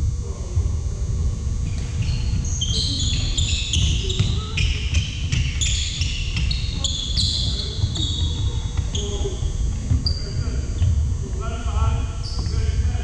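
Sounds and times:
shoes squeaking on hardwood floor: 0:01.7 - 0:11.0
basketball dribbling thuds: 0:01.7 - 0:11.2
running feet: 0:01.7 - 0:13.0.

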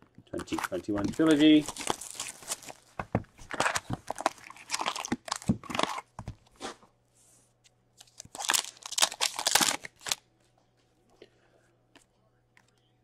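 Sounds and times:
card pack wrapper tearing and crinkling: 0:00.4 - 0:06.1, 0:08.0 - 0:10.2.

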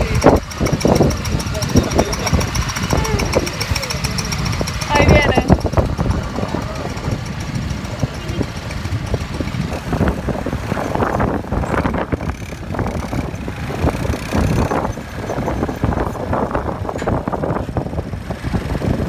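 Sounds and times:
quad bike engines: 0:00.0 - 0:19.0.

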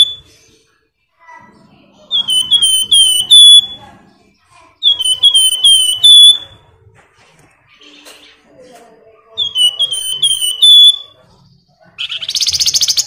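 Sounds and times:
songbird whistling: 0:00.0 - 0:00.4, 0:02.1 - 0:04.0, 0:04.8 - 0:06.7, 0:09.4 - 0:11.4, 0:12.0 - 0:13.0.

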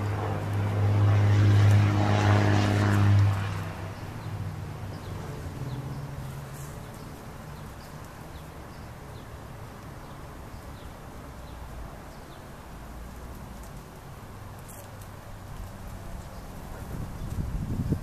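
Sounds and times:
propeller aircraft drone: 0:00.0 - 0:09.5.

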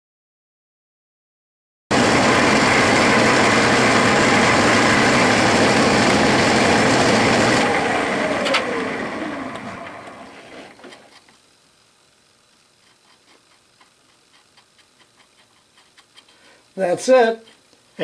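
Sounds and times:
metal lathe whining: 0:01.9 - 0:11.1
lathe click: 0:07.4 - 0:11.0.

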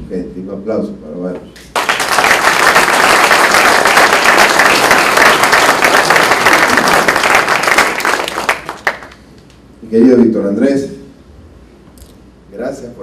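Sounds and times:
audience applauding: 0:01.7 - 0:09.2.

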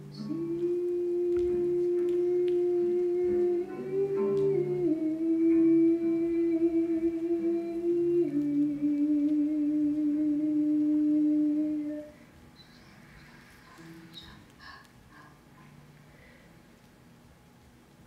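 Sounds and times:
person humming: 0:00.0 - 0:12.2.

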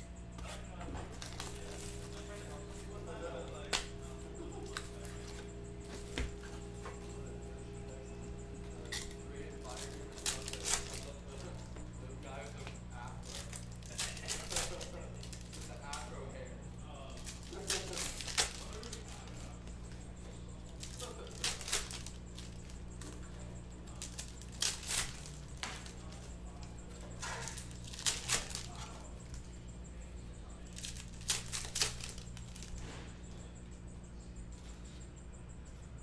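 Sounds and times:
steady low hum: 0:00.0 - 0:36.0
foil wrappers crinkling: 0:00.3 - 0:29.4, 0:30.6 - 0:32.8.

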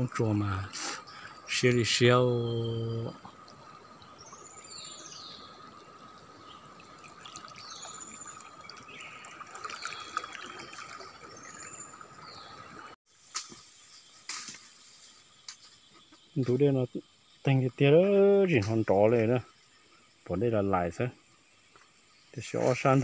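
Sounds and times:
river water running: 0:00.0 - 0:13.5
insect drone: 0:00.0 - 0:23.0.

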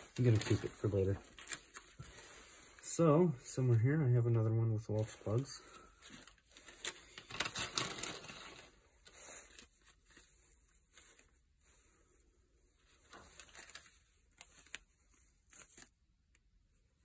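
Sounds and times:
plastic bags crinkling: 0:00.0 - 0:02.9, 0:05.2 - 0:10.2, 0:13.0 - 0:15.9.

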